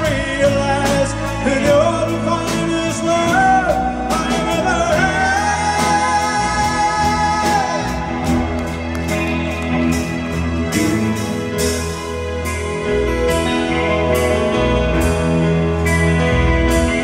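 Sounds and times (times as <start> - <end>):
person singing long notes: 0.0 - 8.8
live pop-rock band playing: 0.0 - 17.0.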